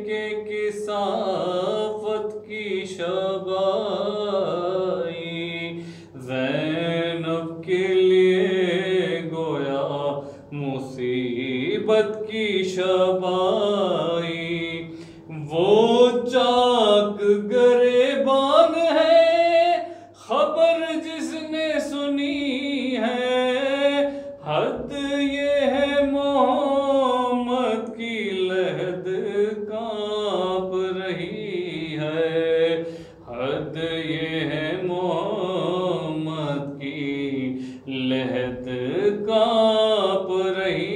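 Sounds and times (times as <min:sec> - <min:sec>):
man chanting: 0:00.0 - 0:40.9
man breathing: 0:05.8 - 0:06.2, 0:10.2 - 0:10.5, 0:14.9 - 0:15.3, 0:19.8 - 0:20.2, 0:24.1 - 0:24.4, 0:32.8 - 0:33.2, 0:37.6 - 0:37.9.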